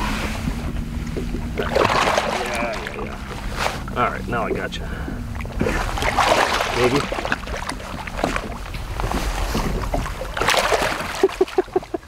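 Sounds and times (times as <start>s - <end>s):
lake water splashing: 0.0s - 12.0s.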